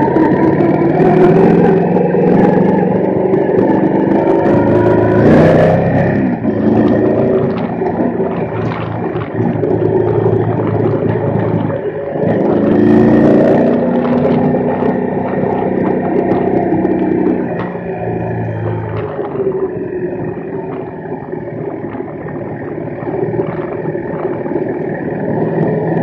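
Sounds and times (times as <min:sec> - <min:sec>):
motorcycle engine running: 0:00.0 - 0:26.0
scattered knocks: 0:13.6 - 0:24.3.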